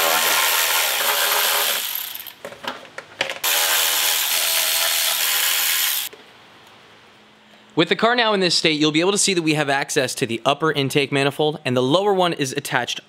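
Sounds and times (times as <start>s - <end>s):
electric ratchet spinning: 0.0s - 2.4s, 3.4s - 6.1s.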